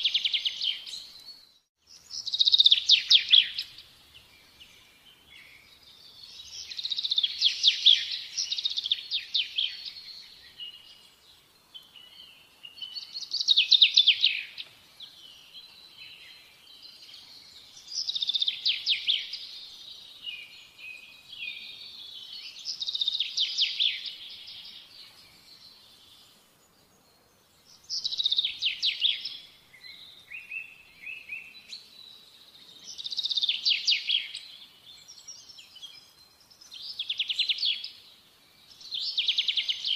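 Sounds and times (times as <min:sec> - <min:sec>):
birdsong trills: 0:00.0 - 0:39.9.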